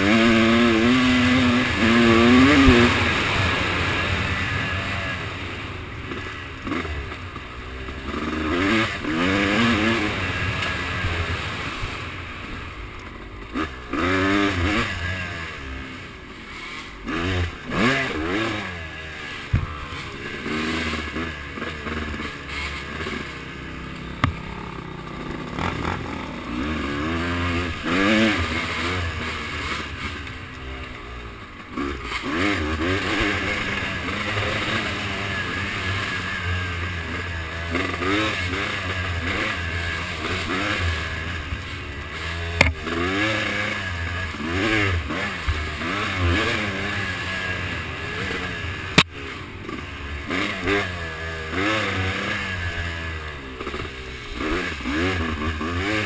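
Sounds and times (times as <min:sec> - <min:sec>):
off-road engine revving: 0:00.0 - 0:56.0
sharp knocks: 0:24.2 - 0:24.5.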